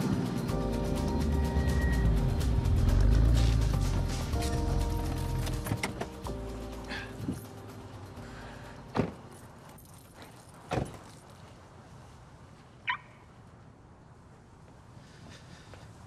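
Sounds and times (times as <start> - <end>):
car doors shutting: 4.4 - 6.2.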